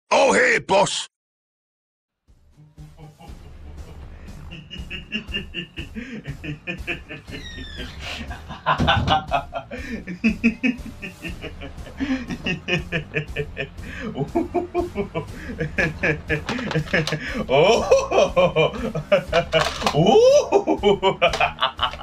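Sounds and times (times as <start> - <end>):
music with steady beat: 2.3 - 7.3, 8.2 - 22.0
man snickering and chuckling: 2.6 - 22.0.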